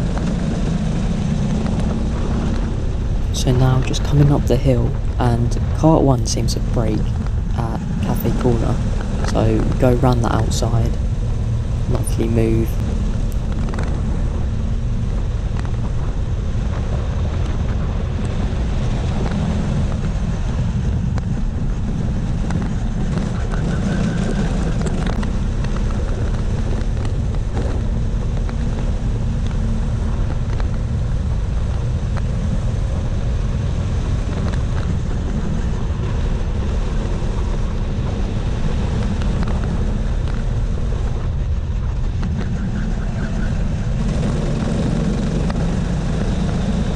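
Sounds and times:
go-kart engine drone: 0:00.0 - 0:46.9.

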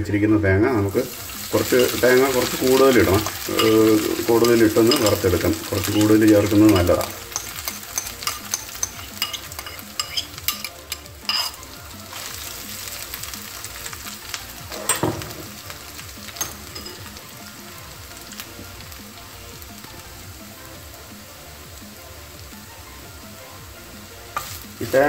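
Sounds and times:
coconut sizzling in hot oil: 0:00.6 - 0:25.0
knock: 0:14.9 - 0:15.5.

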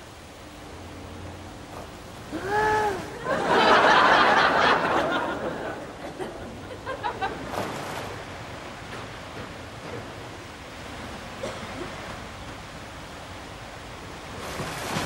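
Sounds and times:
audience laughter: 0:03.2 - 0:07.7.

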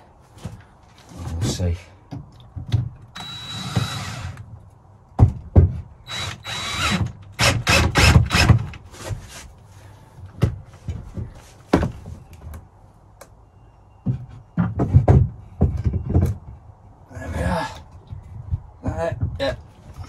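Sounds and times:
drill whining into wood: 0:03.2 - 0:04.4, 0:06.1 - 0:08.7.

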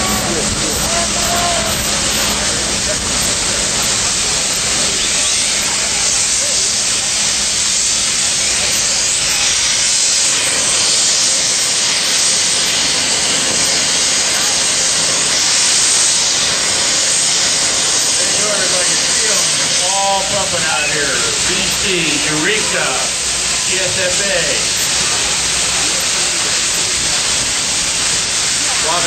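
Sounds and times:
loud hiss of steam: 0:00.0 - 0:29.0
steam fire engine pumping: 0:00.0 - 0:29.0.

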